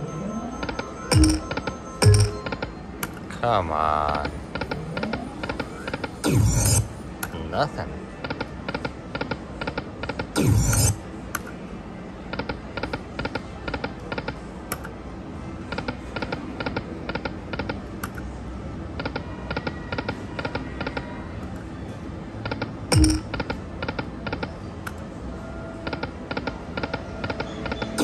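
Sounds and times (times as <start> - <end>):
slot machine background hum: 0.0 - 28.0
slot machine reels spinning: 0.2 - 2.6, 6.3 - 6.9, 10.4 - 11.0.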